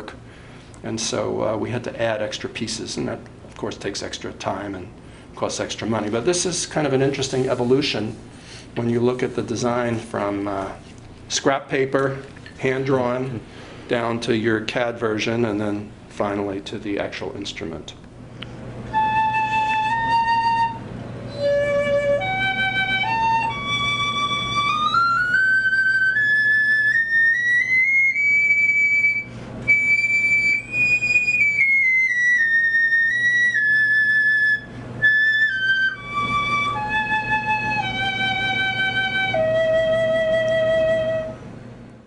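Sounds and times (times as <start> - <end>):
piccolo playing single notes: 18.9 - 41.4.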